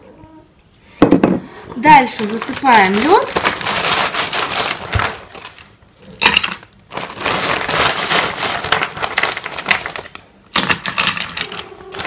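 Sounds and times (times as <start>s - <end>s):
plastic bag crinkling: 1.8s - 5.9s, 6.6s - 10.4s
ice cubes clinking in glass pitcher: 2.1s - 5.2s.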